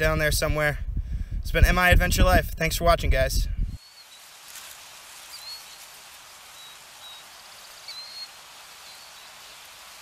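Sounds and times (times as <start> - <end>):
outdoor ambience hiss: 0.0 - 10.0
high bird chirps: 3.8 - 4.4, 5.2 - 9.7.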